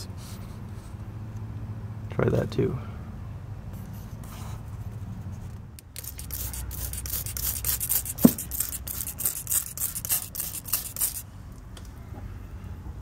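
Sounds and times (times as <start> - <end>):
spray bottle hissing sprays: 6.0 - 11.2.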